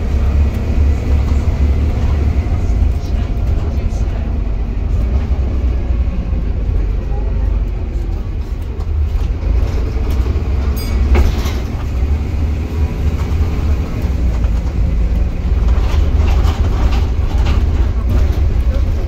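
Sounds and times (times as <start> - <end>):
bus diesel engine rumbling: 0.0 - 19.0
road noise: 0.0 - 19.0
bus body knocking: 8.2 - 19.0.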